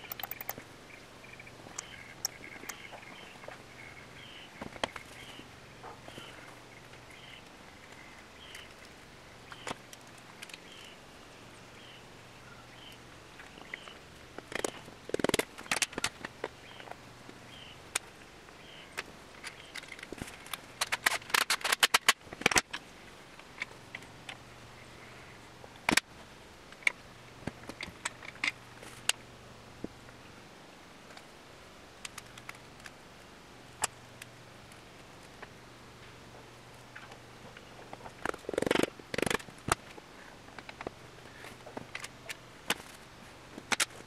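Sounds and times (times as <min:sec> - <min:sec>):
metal clicks and knocks: 0:00.0 - 0:00.6.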